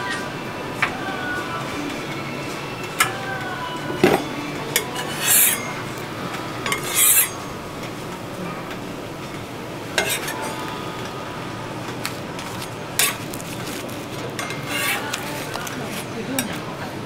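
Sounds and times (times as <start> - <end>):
metal utensils clinking: 2.8 - 10.7, 11.9 - 16.9.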